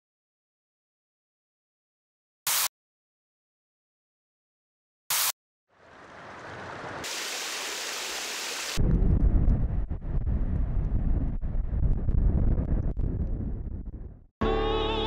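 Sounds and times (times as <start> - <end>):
low rumble with crackles: 8.8 - 14.3.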